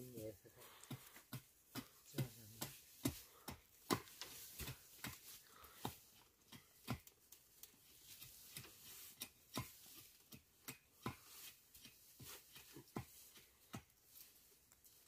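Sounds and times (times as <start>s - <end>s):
blade chopping wooden stake: 0.9s - 7.1s, 8.2s - 13.9s.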